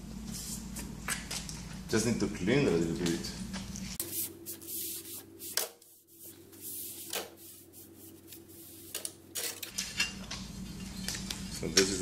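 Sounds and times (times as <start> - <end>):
cloth rag wiping tile: 4.0 - 9.0.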